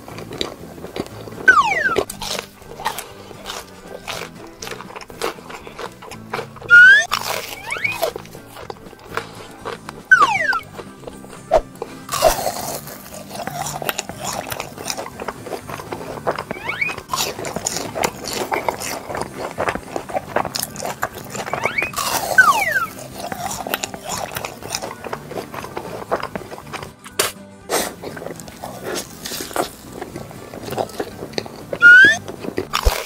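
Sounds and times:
crunching bites and chewing: 0.0s - 33.0s.

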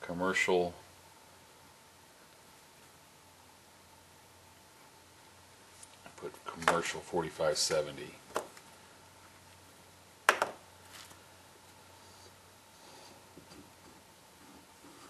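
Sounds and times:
faint small clicks and rustles: 5.7s - 6.7s.

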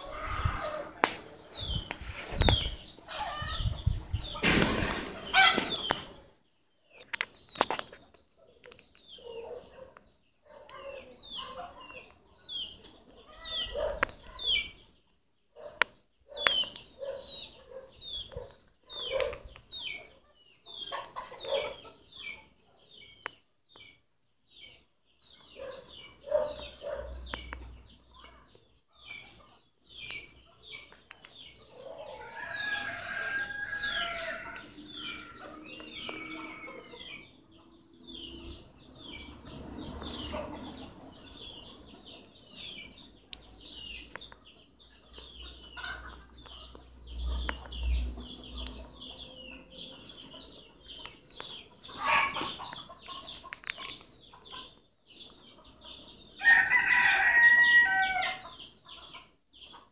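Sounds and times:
small birds chirping: 0.0s - 59.9s
rooster crowing: 32.1s - 37.1s, 56.4s - 58.4s.

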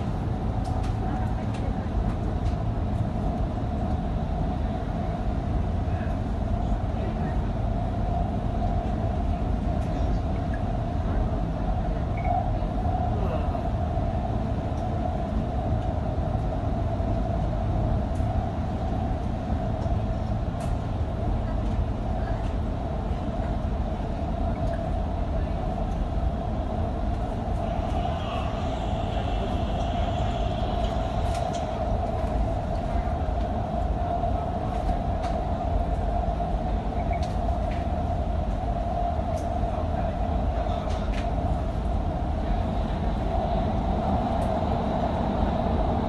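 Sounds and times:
mid-pitched hum: 0.0s - 46.0s
train rumbling on track: 0.0s - 46.0s.

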